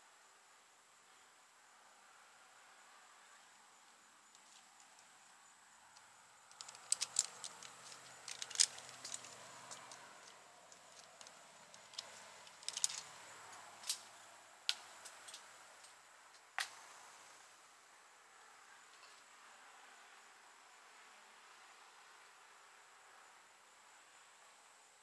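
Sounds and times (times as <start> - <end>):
metallic clicks and clinks: 6.5 - 13.2.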